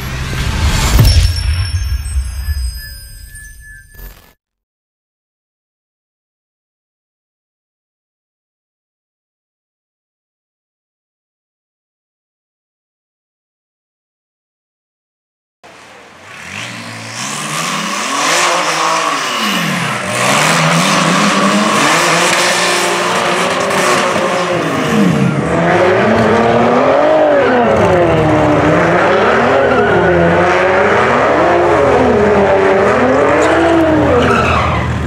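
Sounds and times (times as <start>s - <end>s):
car engine revving: 15.7s - 35.0s.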